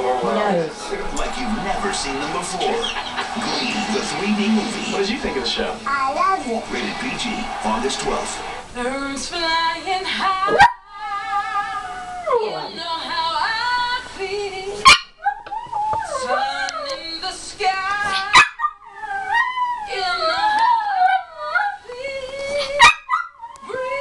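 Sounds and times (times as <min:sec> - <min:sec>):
woman singing on tv: 0:07.6 - 0:24.0
dog howling and whining: 0:10.6 - 0:12.7, 0:15.2 - 0:16.6, 0:18.1 - 0:21.8
dog yipping: 0:14.8 - 0:16.2, 0:18.1 - 0:19.7, 0:22.8 - 0:23.6.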